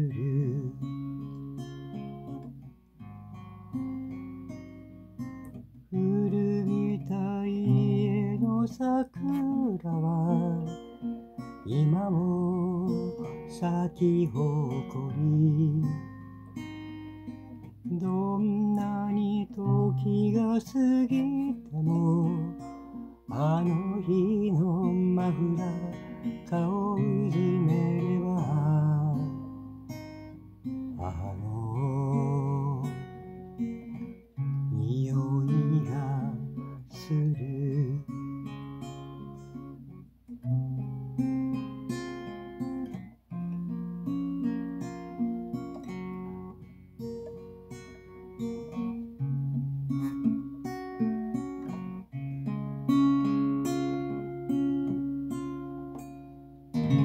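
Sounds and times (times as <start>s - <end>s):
person singing: 0.0s - 1.1s, 5.9s - 16.1s, 17.8s - 29.6s, 30.9s - 33.3s, 33.9s - 38.2s, 56.8s - 57.0s
acoustic guitar strumming: 0.0s - 57.0s.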